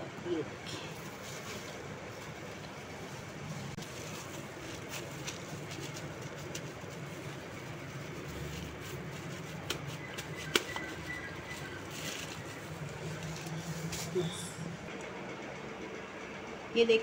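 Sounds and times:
steady low hum: 0.0s - 17.0s
plastic sheet crackling: 1.1s - 14.4s.

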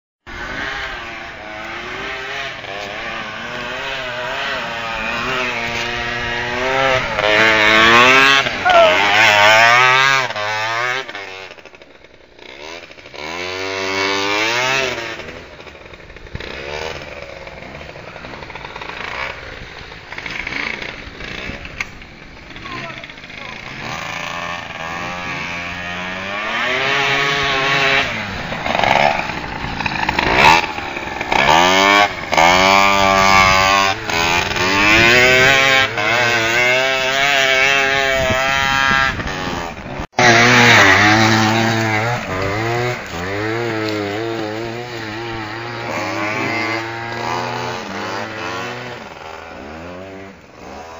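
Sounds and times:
scooter engines revving: 0.3s - 50.9s.

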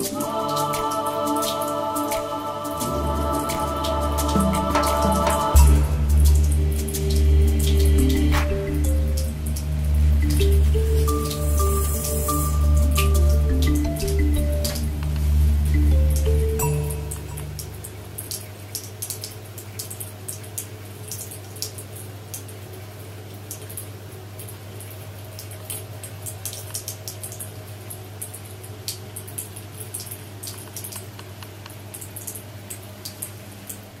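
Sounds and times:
steady low hum: 0.0s - 18.3s
water splashes and drips: 0.0s - 34.0s.

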